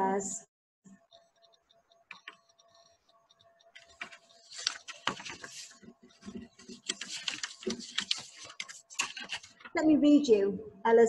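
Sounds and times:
rustling and clicking handling noises: 1.0s - 9.8s.

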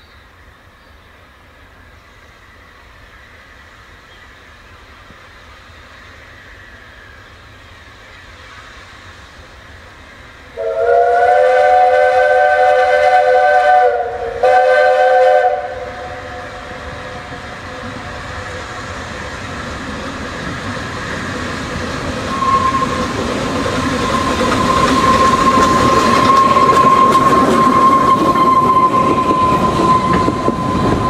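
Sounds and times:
steam locomotive approaching: 0.0s - 31.0s
steam whistle chord: 10.6s - 16.7s, 22.3s - 23.1s, 24.1s - 31.0s.

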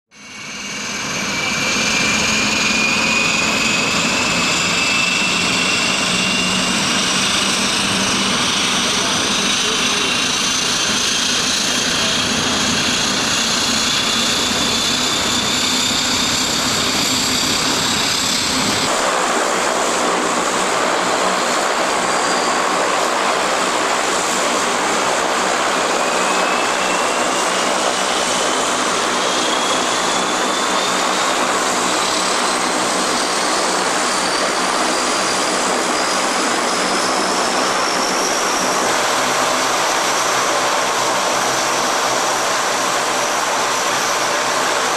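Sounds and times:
turboprop engines spooling up: 0.1s - 44.9s.

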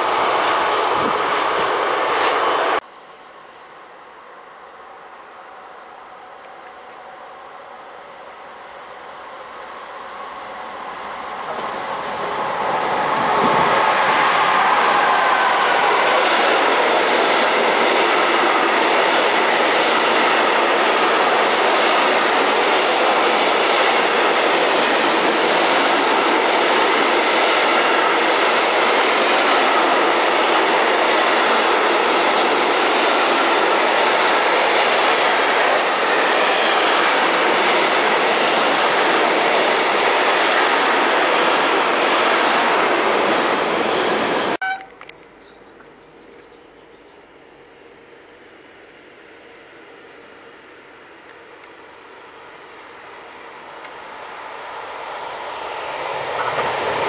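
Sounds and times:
freight train wheel and rail noise: 0.0s - 57.0s.

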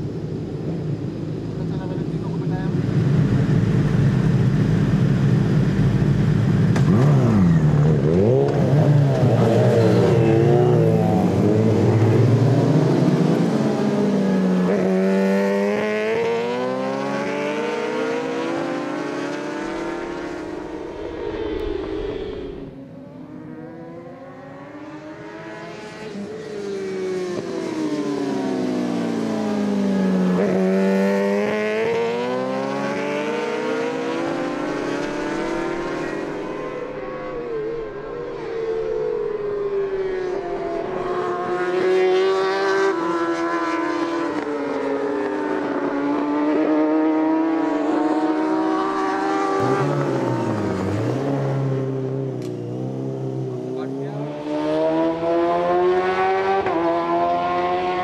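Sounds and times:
racing motorcycle engines revving: 0.0s - 58.0s
deeper engine note: 19.9s - 23.9s.

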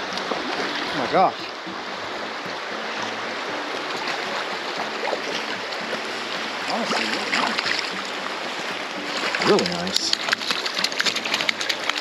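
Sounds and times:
creek rushing over rocks: 0.0s - 12.0s
fish splashing in water: 6.7s - 8.3s, 9.1s - 12.0s.

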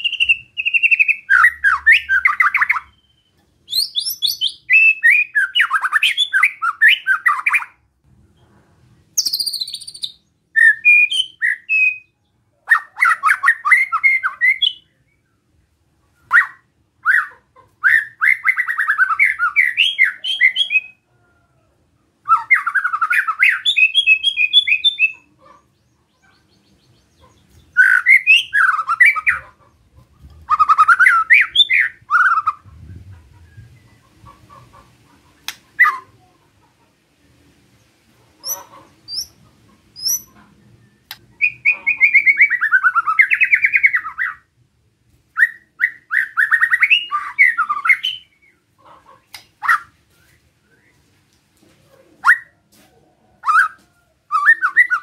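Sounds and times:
high clear bird whistle: 0.0s - 7.7s, 9.2s - 12.1s
bird singing harsh rasping notes: 22.3s - 25.3s, 26.2s - 29.5s, 38.4s - 39.4s, 40.0s - 44.4s.

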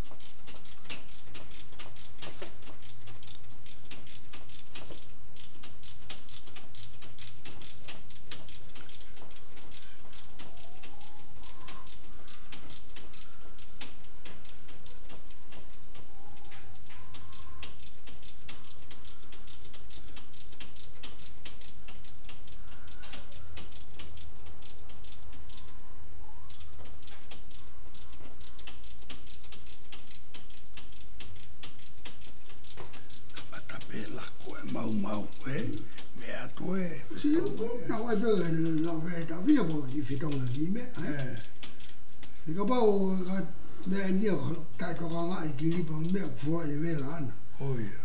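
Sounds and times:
ratchet wrench clicking: 0.0s - 25.7s
steady low hum: 0.0s - 48.0s.

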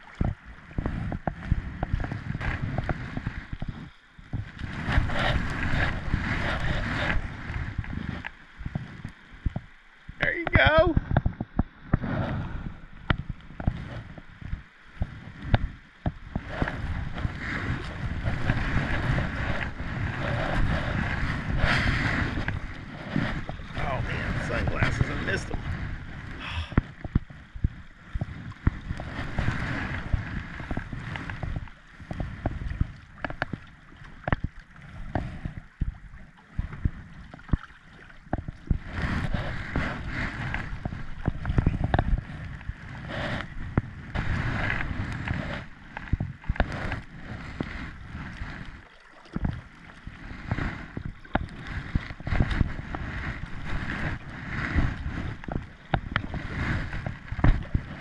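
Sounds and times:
kayak paddle strokes: 0.0s - 58.0s
water splashing and gurgling: 0.0s - 58.0s
wind rumbling on microphone: 0.0s - 58.0s.

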